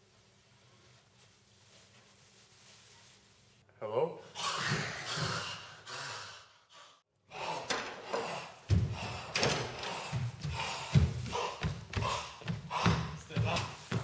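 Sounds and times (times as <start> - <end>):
person gasping and grunting: 4.2 - 6.5, 7.3 - 13.3.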